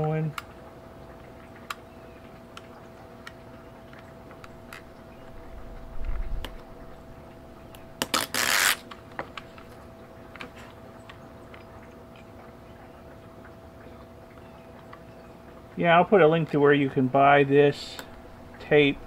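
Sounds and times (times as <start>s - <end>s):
tape liner ripping: 8.0s - 8.9s.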